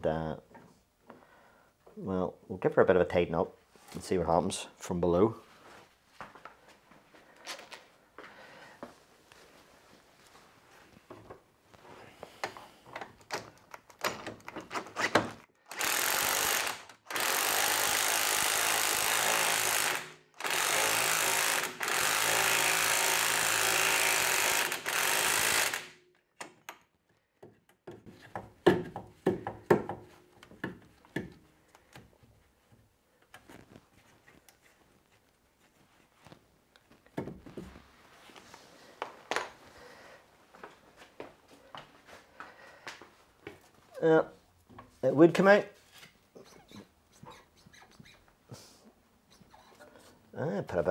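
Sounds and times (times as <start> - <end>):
impact wrench running: 15.7 - 26.0.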